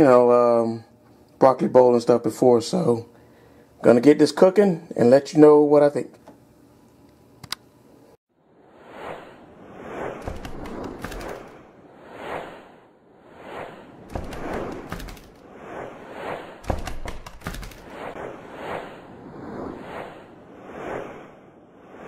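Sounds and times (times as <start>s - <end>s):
whooshes: 8.6s - 22.0s.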